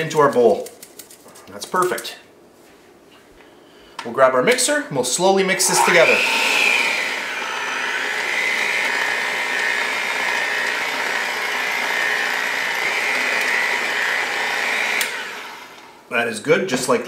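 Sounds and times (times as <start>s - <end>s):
electric hand mixer whining: 5.5s - 16.0s.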